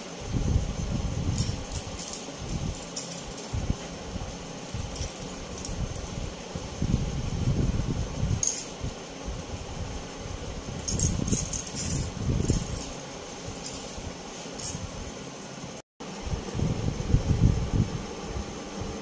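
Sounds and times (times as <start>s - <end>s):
bangles clinking: 1.3s - 3.6s, 4.6s - 6.2s, 8.4s - 8.8s, 10.8s - 14.9s.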